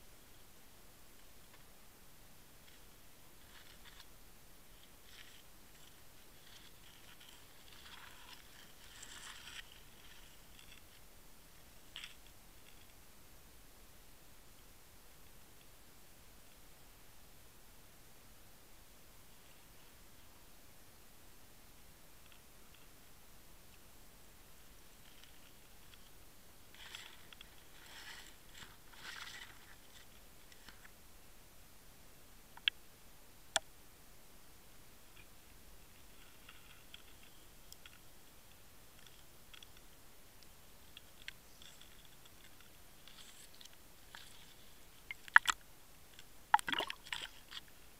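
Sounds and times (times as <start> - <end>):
faint hiss: 0.0 - 47.9
muffled scratching and rustling: 2.6 - 13.0, 24.6 - 31.0, 35.1 - 40.0, 40.8 - 45.6.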